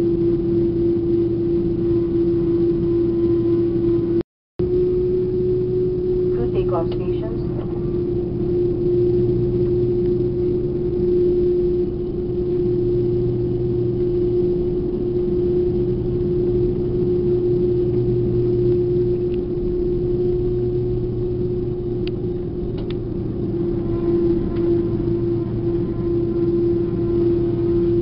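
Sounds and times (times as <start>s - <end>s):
jet engine cabin drone: 0.0s - 28.0s.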